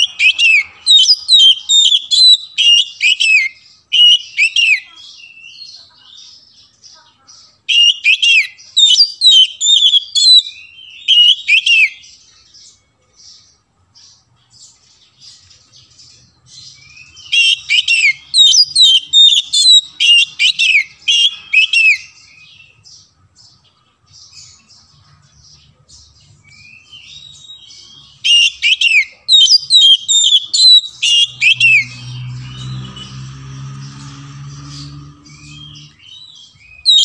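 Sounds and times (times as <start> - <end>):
bird singing whistled phrases: 0.0 - 5.7, 7.7 - 12.0, 16.7 - 22.8, 26.4 - 33.2, 35.3 - 37.0
bird chips and twitters: 14.8 - 23.6, 25.4 - 37.0.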